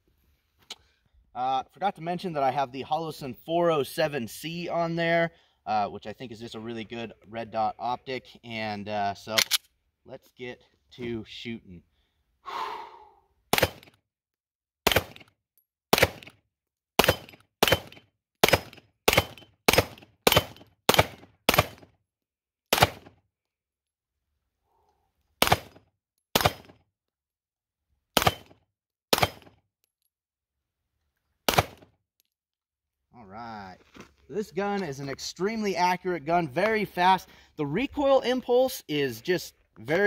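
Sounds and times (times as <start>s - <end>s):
pistol shots: 13.5s - 14.0s, 14.8s - 15.3s, 15.9s - 16.3s, 17.0s - 21.9s, 22.7s - 23.1s, 25.4s - 26.8s, 28.2s - 29.5s, 31.5s - 31.8s.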